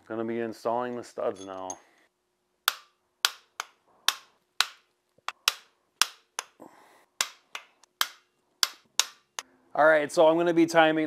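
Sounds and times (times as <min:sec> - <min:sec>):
sharp metallic clicks and taps: 0:07.2 - 0:09.4.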